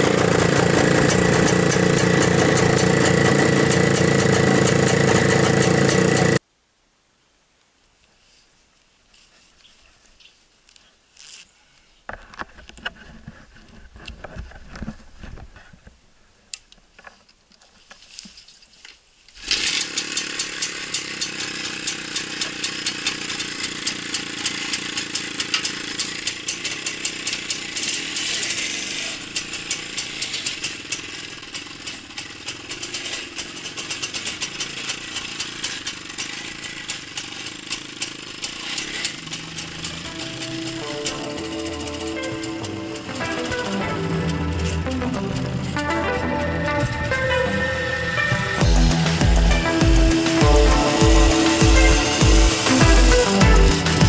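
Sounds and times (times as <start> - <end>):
two-stroke motorcycle engine running: 0.0 - 6.4, 19.5 - 47.1, 48.6 - 54.0.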